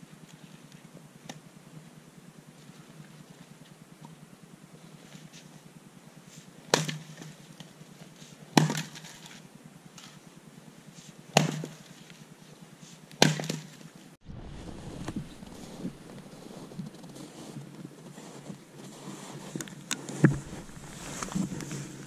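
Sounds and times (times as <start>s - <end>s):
axe splitting wood: 8.6s - 9.0s, 11.4s - 11.7s, 13.2s - 13.6s
wind rumble on microphone: 14.2s - 18.0s, 20.2s - 22.0s.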